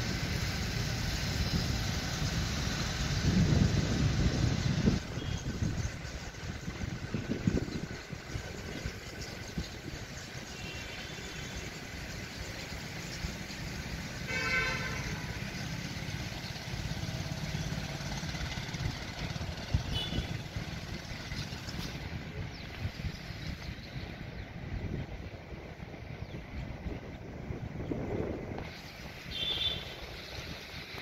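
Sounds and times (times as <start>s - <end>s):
engine rumbling: 0.0s - 31.0s
horn sounding: 14.2s - 15.5s, 19.8s - 20.5s, 29.3s - 30.1s.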